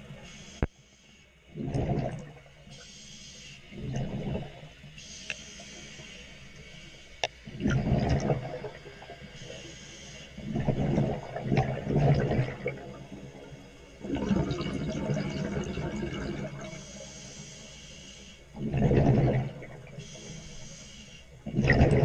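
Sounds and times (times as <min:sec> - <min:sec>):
hissing regulator in-breath: 0:00.2 - 0:01.3, 0:02.7 - 0:03.8, 0:04.9 - 0:07.2, 0:08.8 - 0:10.5, 0:16.6 - 0:18.6, 0:19.9 - 0:21.4
exhaled bubbles gurgling: 0:01.5 - 0:02.7, 0:03.7 - 0:05.2, 0:07.3 - 0:09.7, 0:10.4 - 0:17.0, 0:18.5 - 0:20.4, 0:21.4 - 0:22.0.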